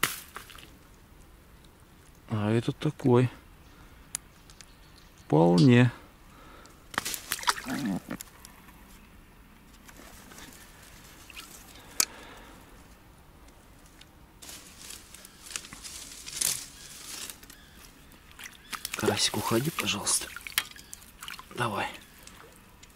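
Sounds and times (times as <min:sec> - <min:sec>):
water splashing and dripping: 0:07.2 - 0:07.8, 0:18.1 - 0:22.9
handling rustles: 0:13.8 - 0:18.0.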